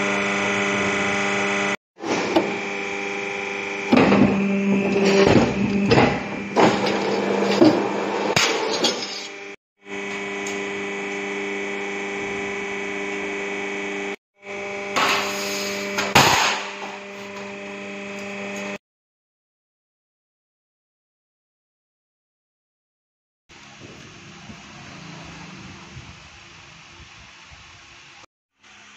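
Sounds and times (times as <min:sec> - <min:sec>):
hydraulic pump motor hum: 0:00.0 - 0:18.8.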